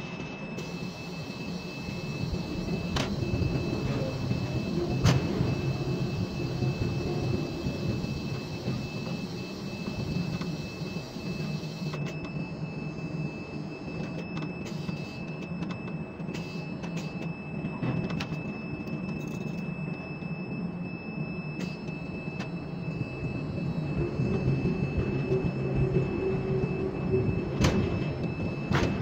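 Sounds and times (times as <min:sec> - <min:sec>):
crane machinery running: 0:00.0 - 0:29.0
thin steady whine: 0:00.0 - 0:29.0.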